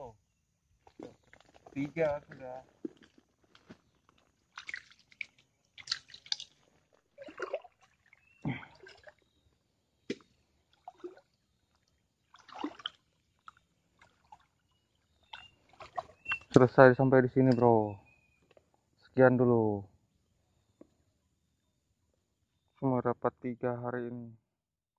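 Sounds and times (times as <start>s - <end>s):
wading through shallow water: 0.8s - 16.6s.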